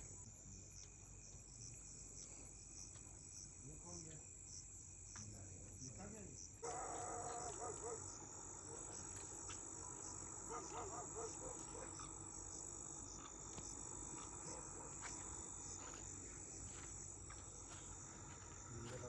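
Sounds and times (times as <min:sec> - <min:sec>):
insect chorus trilling: 0:00.0 - 0:19.0
faint wavering calls: 0:06.6 - 0:15.7.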